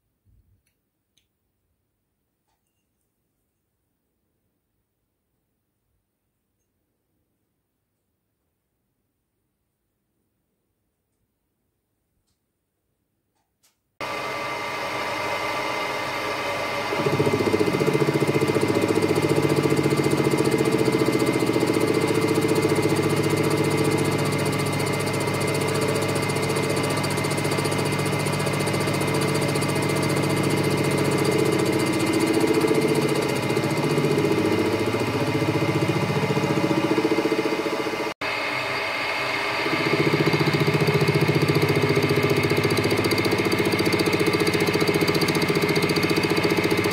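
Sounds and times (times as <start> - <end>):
end mill cutting brass hum: 14.0 - 46.9
milling machine motor whine: 14.0 - 46.9.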